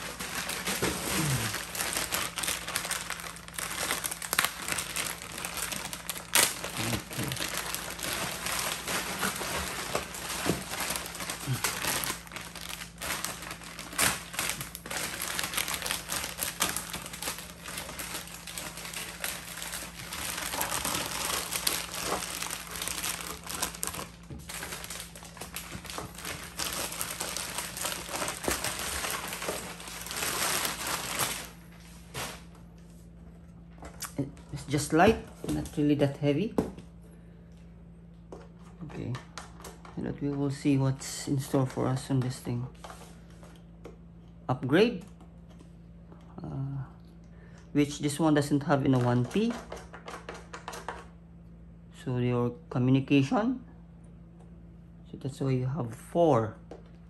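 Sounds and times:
plastic bag crinkling: 0:00.0 - 0:32.5, 0:48.6 - 0:51.0.

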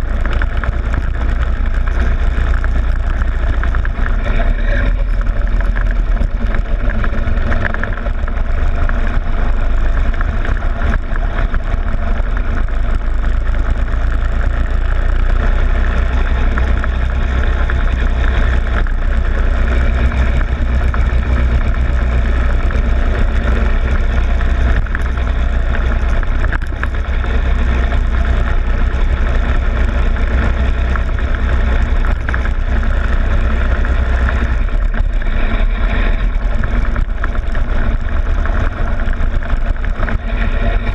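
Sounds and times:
go-kart engine running: 0:00.0 - 0:40.9
wind noise: 0:00.0 - 0:40.9.

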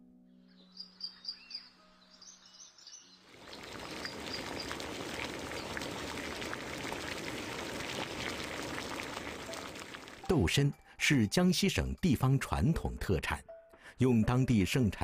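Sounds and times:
faint bird chirps: 0:00.2 - 0:04.8
liquid bubbling at a boil: 0:03.2 - 0:10.3.

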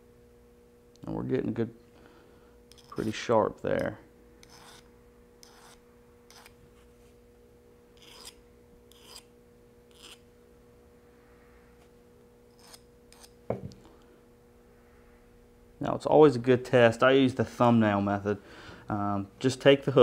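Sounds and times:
file scraping metal hook: 0:02.7 - 0:03.2, 0:04.4 - 0:06.6, 0:08.0 - 0:09.3, 0:09.9 - 0:10.2, 0:12.5 - 0:13.4.

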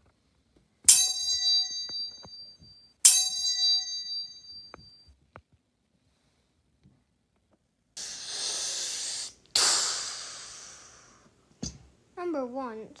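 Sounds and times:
metallic bell dings: 0:00.9 - 0:05.1.

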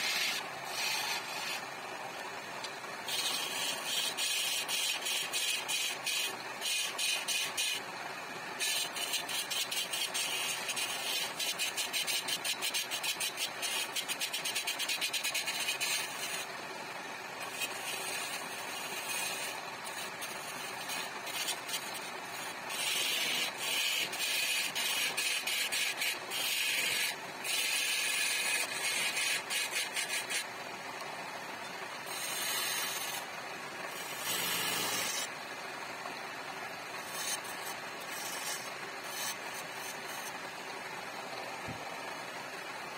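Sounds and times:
chisel scraping wood: 0:00.0 - 0:01.6, 0:18.7 - 0:30.4, 0:32.1 - 0:33.2, 0:33.9 - 0:35.3, 0:37.0 - 0:40.3
wood lathe spinning: 0:00.0 - 0:42.8.

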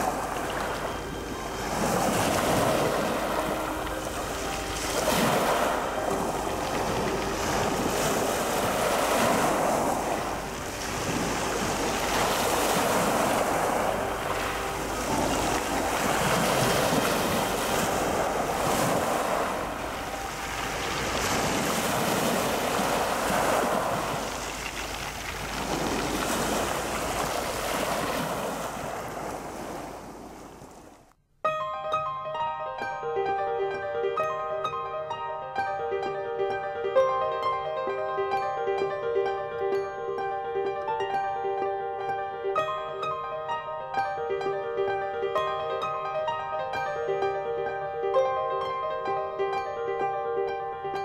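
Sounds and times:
waves washing over pebbles: 0:00.0 - 0:31.0.

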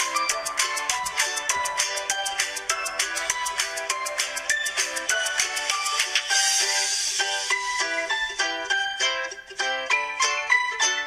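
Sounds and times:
shaker beat: 0:00.0 - 0:08.5
light upbeat music: 0:00.0 - 0:11.0.

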